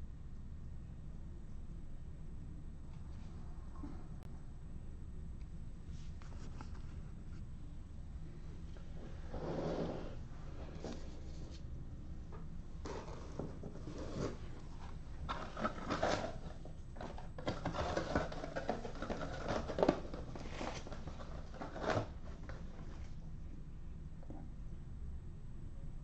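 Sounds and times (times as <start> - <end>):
low steady hum: 0.0 - 26.0
rustling and handling noises: 5.8 - 23.3.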